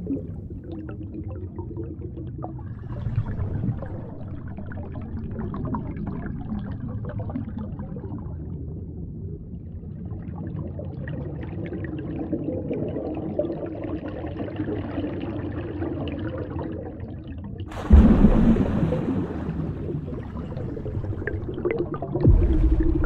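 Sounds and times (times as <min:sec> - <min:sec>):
water bubbling and gurgling: 0:00.0 - 0:23.0
rush of water: 0:17.7 - 0:23.0.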